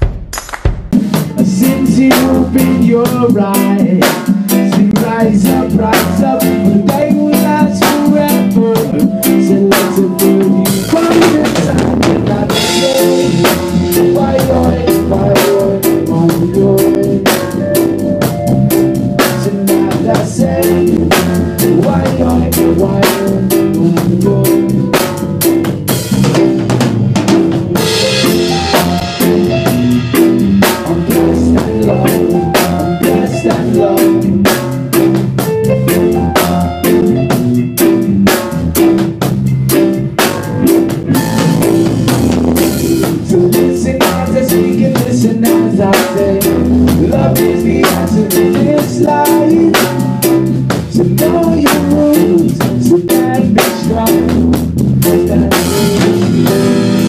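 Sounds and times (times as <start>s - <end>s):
drum kit beat with rimshots: 0.0s - 57.0s
keyboard: 1.0s - 57.0s
electric guitar: 1.2s - 57.0s
man singing into a microphone: 1.3s - 17.7s, 19.2s - 25.0s, 30.8s - 34.5s, 43.1s - 57.0s.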